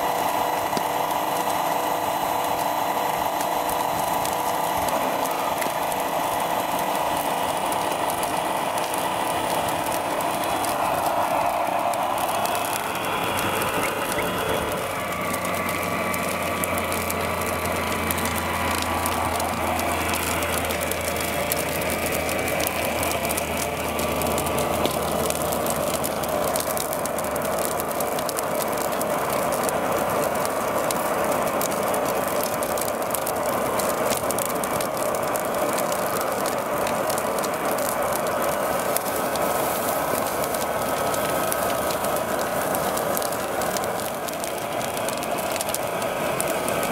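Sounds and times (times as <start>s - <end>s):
small electric motors whirring: 0.0s - 33.4s
fine crackling: 0.3s - 46.9s.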